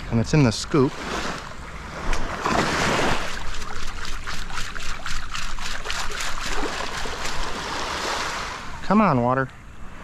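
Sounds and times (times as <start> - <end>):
water sloshing through metal scoop: 2.1 - 8.0.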